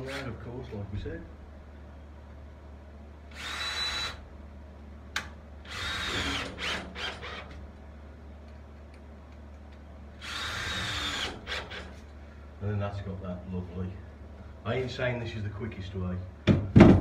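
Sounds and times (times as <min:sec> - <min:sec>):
cordless drill whining: 0:03.3 - 0:04.2, 0:05.7 - 0:07.5, 0:10.2 - 0:12.0.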